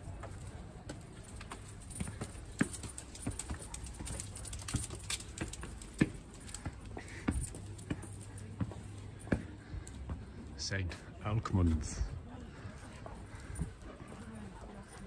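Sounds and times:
footsteps on hard paving: 0:00.0 - 0:15.0.

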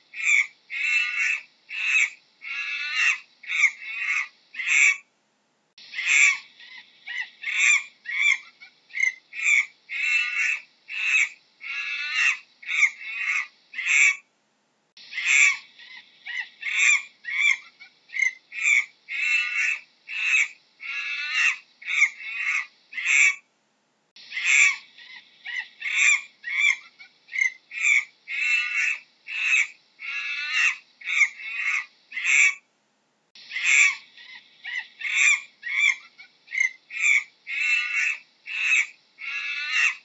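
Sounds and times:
faint hiss: 0:00.0 - 0:40.0
monkey squeaky calls: 0:05.9 - 0:14.2, 0:15.0 - 0:23.4, 0:24.2 - 0:32.6, 0:33.4 - 0:40.0.

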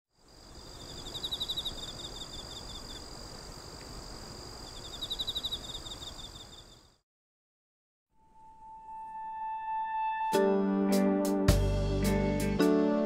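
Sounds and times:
crickets chirping: 0:00.1 - 0:07.0
high-pitched insect trill: 0:00.2 - 0:07.0.

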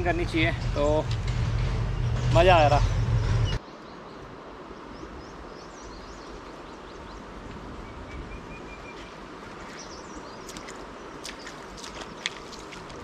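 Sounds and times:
birds chirping: 0:00.0 - 0:13.0
river running over stones: 0:08.9 - 0:13.0.

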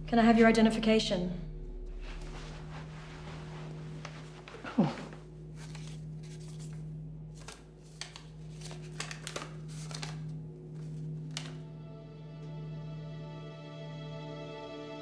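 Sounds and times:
low hum: 0:00.0 - 0:14.3
paper swish: 0:02.2 - 0:06.8, 0:07.4 - 0:11.6
papers rustling: 0:03.2 - 0:11.6.

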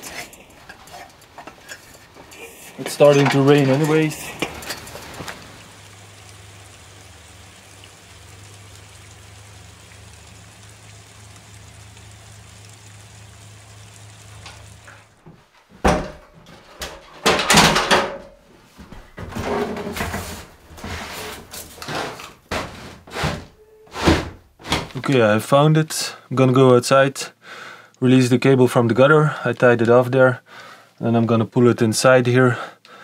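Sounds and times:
knocks and thumps: 0:15.2 - 0:25.0.

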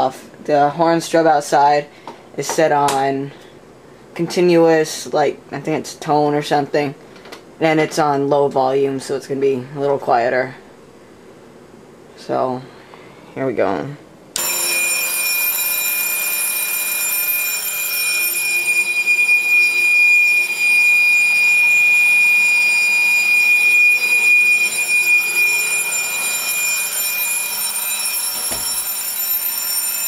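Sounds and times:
alarm bell ringing: 0:14.4 - 0:30.0
alarm horn steady high tone: 0:14.4 - 0:30.0.

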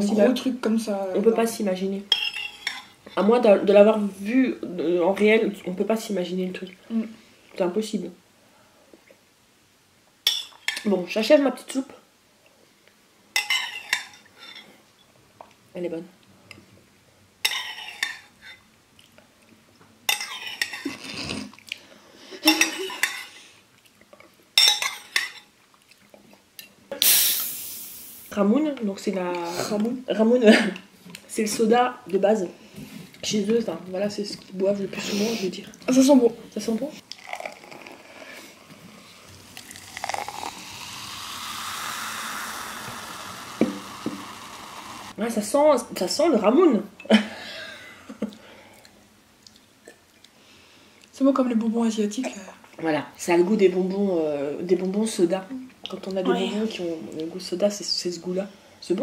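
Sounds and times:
metal spoon clinking on ceramic bowl: 0:24.6 - 0:25.4
soda fizzing in a glass: 0:27.0 - 0:28.4, 0:39.0 - 0:45.2.

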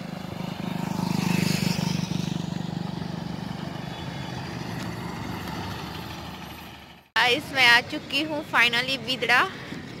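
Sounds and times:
motorcycle riding past: 0:00.0 - 0:07.0
bus engine running: 0:00.0 - 0:10.0.

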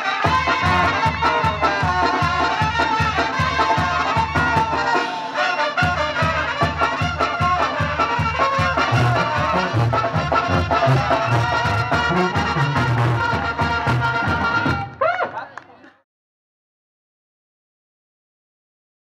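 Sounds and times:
brass band playing dance tune: 0:00.0 - 0:15.0
tuba bass: 0:00.2 - 0:14.9.

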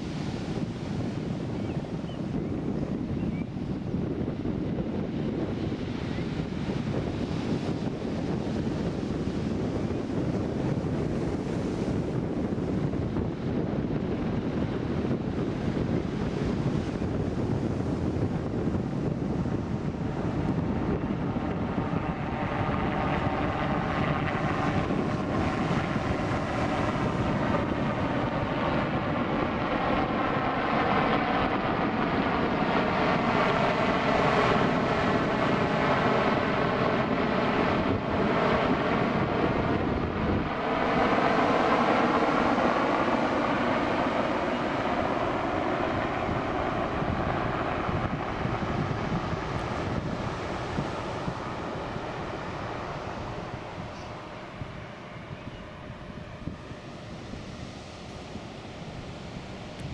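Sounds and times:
helicopter drone: 0:00.0 - 0:59.9.

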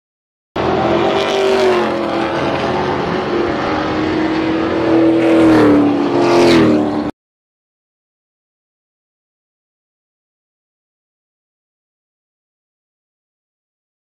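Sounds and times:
race truck engine at speed: 0:00.6 - 0:07.1.

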